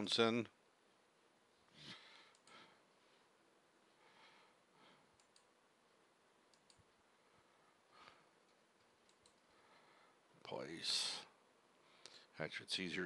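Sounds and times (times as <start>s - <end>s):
computer mouse clicks: 2.3s - 2.6s, 5.1s - 5.6s, 6.5s - 7.0s, 8.4s - 9.5s.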